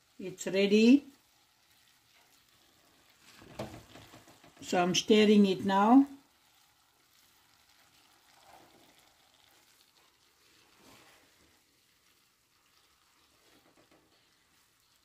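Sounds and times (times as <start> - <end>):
spoon stirring rice in a pot: 1.1 - 4.7, 6.5 - 15.0.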